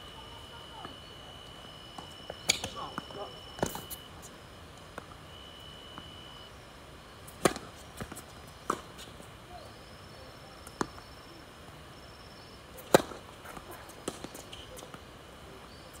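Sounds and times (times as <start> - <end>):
tennis racket hitting ball: 7.4 - 8.9.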